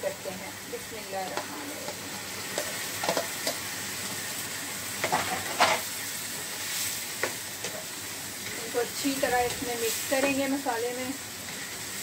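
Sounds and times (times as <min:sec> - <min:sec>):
food sizzling in frying pan: 0:00.0 - 0:12.0
spatula scraping and knocking pan: 0:01.3 - 0:03.6, 0:05.0 - 0:05.9.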